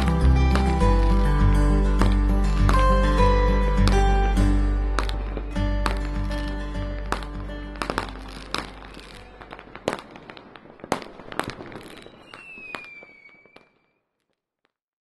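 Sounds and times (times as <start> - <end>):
firework bangs: 0.0 - 14.0
fireworks crackling: 0.0 - 14.4
firework whistle: 7.9 - 14.0.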